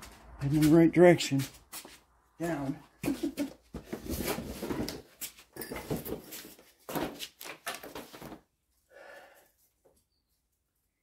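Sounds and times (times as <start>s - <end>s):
rustling and scraping: 3.0s - 8.5s.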